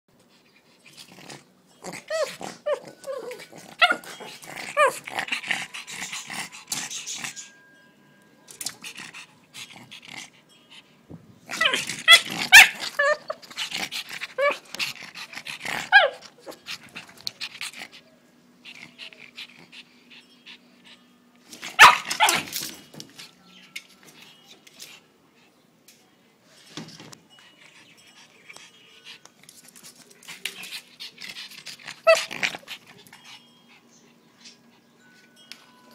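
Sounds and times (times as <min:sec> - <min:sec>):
dog barking and growling: 0:01.2 - 0:07.4, 0:11.5 - 0:18.0, 0:21.6 - 0:22.6, 0:31.1 - 0:33.2.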